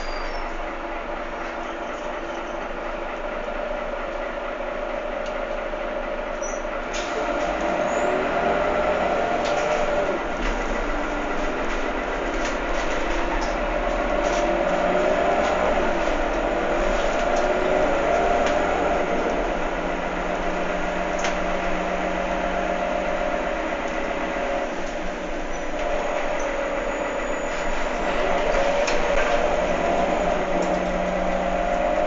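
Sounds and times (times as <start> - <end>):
bus engine drone with whine: 0.0 - 32.0
interior clicks and rattles: 9.2 - 32.0.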